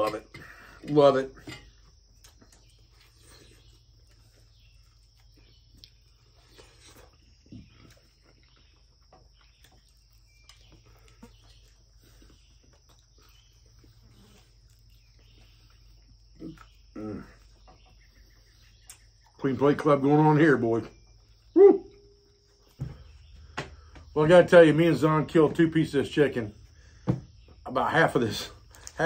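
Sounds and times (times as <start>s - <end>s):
man chewing food: 0.4s - 19.4s.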